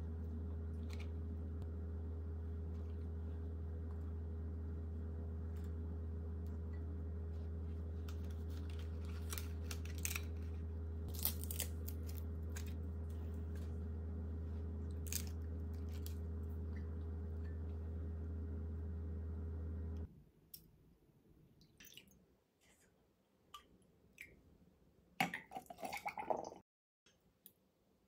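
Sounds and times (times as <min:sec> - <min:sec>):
steady low hum: 0:00.0 - 0:20.1
fried sheets crackling: 0:07.9 - 0:13.6.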